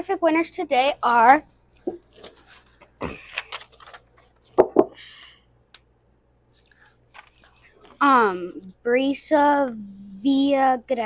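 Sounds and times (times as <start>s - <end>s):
paper rustling: 1.8s - 4.6s, 6.6s - 8.0s.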